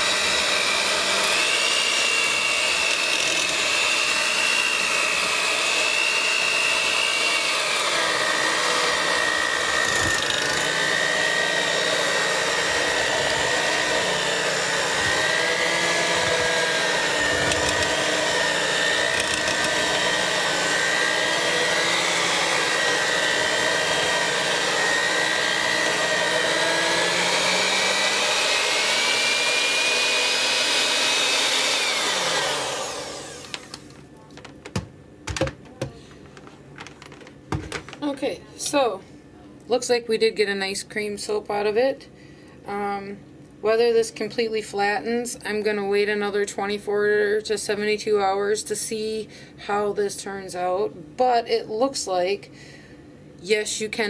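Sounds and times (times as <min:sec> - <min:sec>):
electric hand mixer whining: 0:00.0 - 0:33.9.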